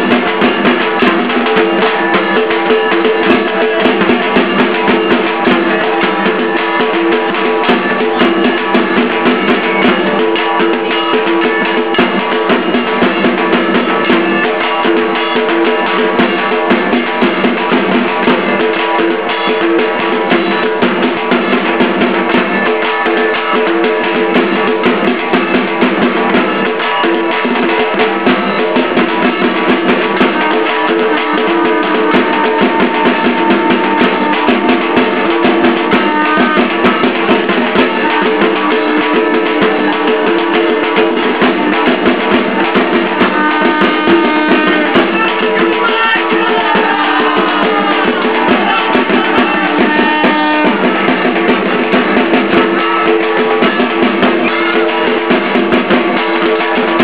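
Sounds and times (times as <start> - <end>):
drum-led music: 0.0 - 57.0.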